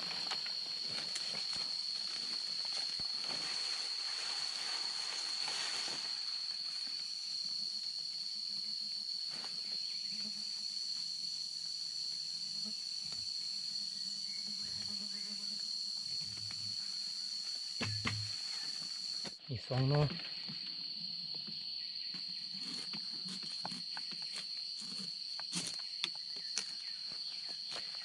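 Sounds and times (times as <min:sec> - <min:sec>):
rustling crackling vegetation: 0:00.0 - 0:06.7
insects droning: 0:00.0 - 0:28.0.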